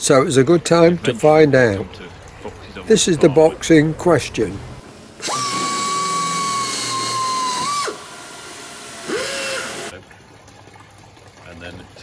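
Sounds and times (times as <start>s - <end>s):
pneumatic air tool whine: 5.2s - 9.9s.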